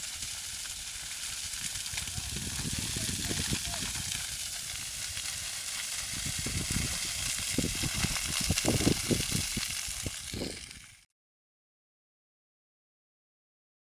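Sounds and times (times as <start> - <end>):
fire rumbling gusts: 0.0 - 11.0
grass fire crackling: 0.0 - 11.1.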